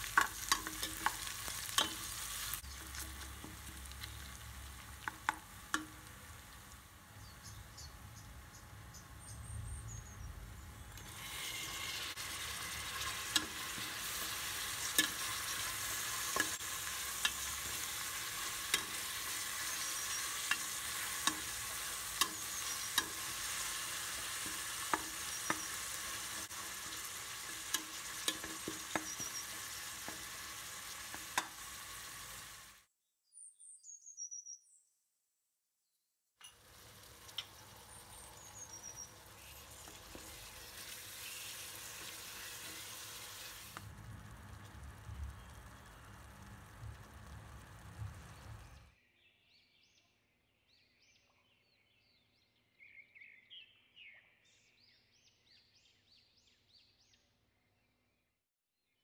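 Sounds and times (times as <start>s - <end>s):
vegetables sizzling in oil: 0.0s - 8.1s, 10.9s - 32.9s, 36.4s - 48.8s.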